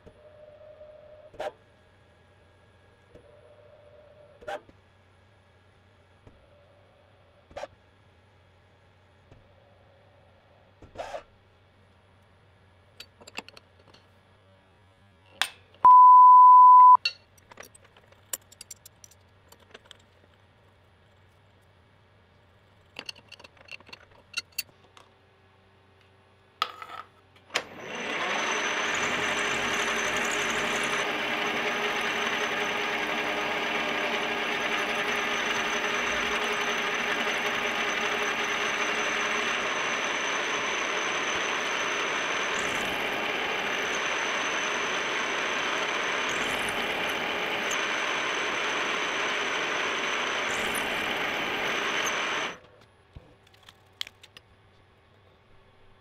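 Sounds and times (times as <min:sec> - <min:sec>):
milling machine cutting with whine: 0:27.6 - 0:52.6.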